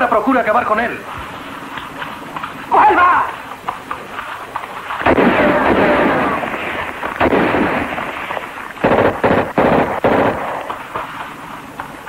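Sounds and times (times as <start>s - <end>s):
rifle gunshots: 5.0s - 11.0s.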